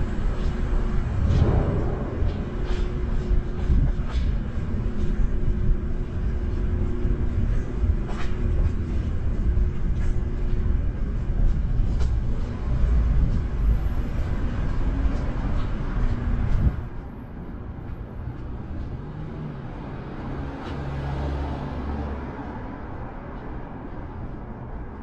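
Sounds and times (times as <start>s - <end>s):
loud low rumble: 0.0s - 18.2s
faint hum: 0.0s - 19.0s.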